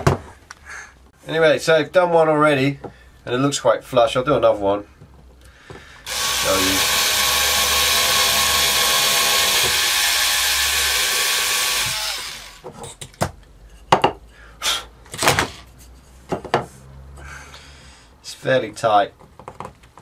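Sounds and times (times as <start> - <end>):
cordless drill boring wood: 6.0 - 12.7.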